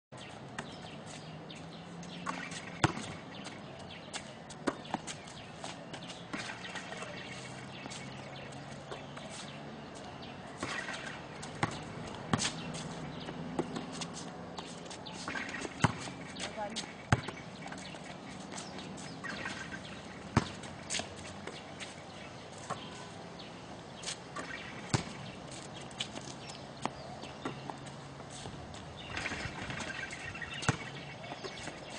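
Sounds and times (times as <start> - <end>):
basketball bouncing: 2.2 - 3.6, 10.6 - 12.6, 15.3 - 16.5, 17.1 - 18.6, 19.2 - 21.6, 24.4 - 25.3, 29.1 - 31.6.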